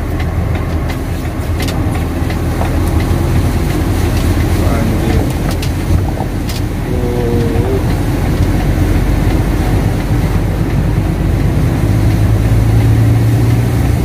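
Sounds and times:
engine and road drone: 0.0s - 14.0s
steady hum: 1.8s - 10.7s.

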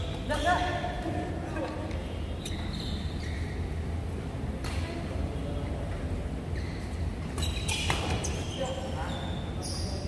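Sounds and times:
shoe squeaks on court floor: 2.4s - 3.7s, 6.5s - 10.0s.

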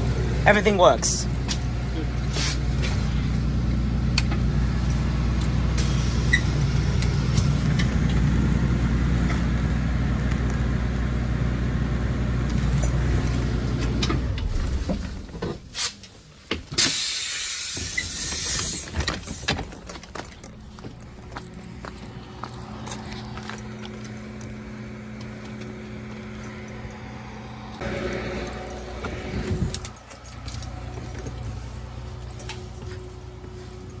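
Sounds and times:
bus engine idling: 0.0s - 34.0s
hiss: 16.8s - 18.8s.

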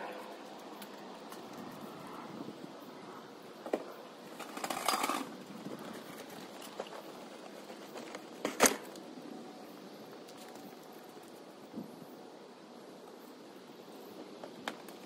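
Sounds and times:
scraping rustle: 3.7s - 9.0s.

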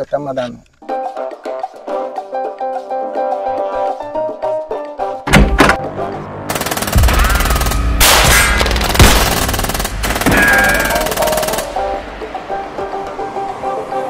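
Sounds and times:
background music: 0.8s - 14.0s
automatic gunfire bursts: 6.5s - 11.7s.

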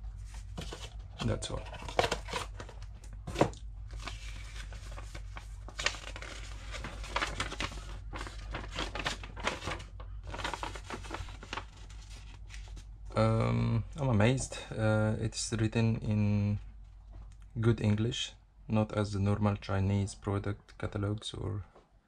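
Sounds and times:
paper crinkling and rustling: 0.2s - 12.9s.

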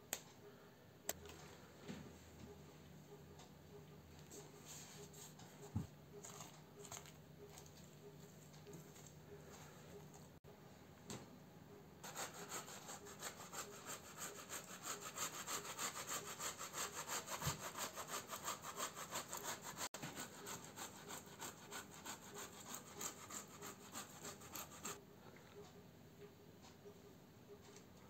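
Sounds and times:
carrot grating on metal grater: 12.0s - 25.0s.

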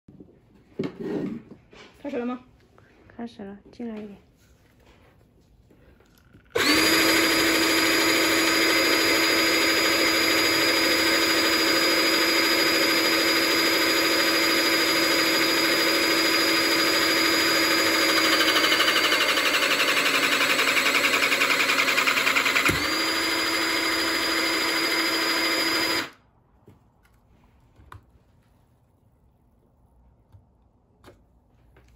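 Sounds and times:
hydraulic pump motor whining: 6.5s - 26.2s.

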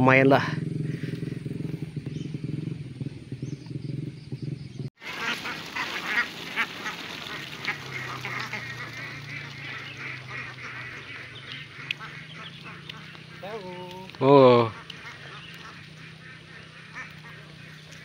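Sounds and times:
ducks quacking: 0.8s - 1.4s, 5.0s - 18.0s.

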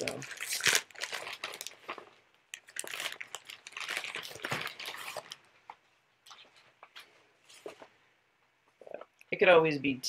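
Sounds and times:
packaging crinkling: 0.0s - 5.5s.

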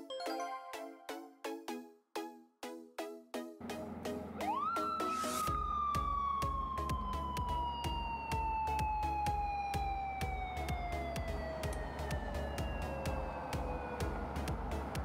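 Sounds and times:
background music with steady beat: 0.0s - 15.0s
motorcycle siren wailing: 4.3s - 14.8s.

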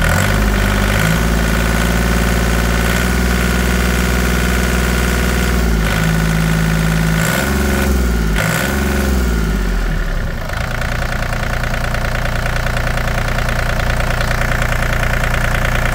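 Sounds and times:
mini excavator diesel engine: 0.0s - 15.9s.

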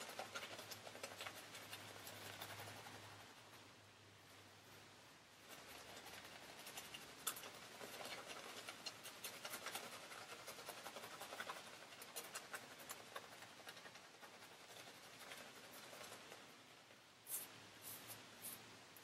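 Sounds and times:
shaving brush scratching through lather: 5.5s - 16.4s.

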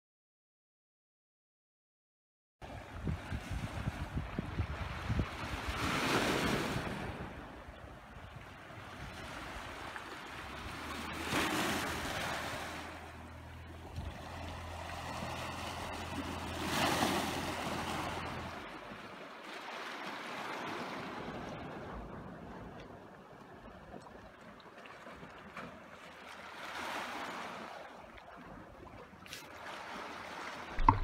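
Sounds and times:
waves washing over pebbles: 8.9s - 13.4s, 14.0s - 22.7s, 29.4s - 31.0s.

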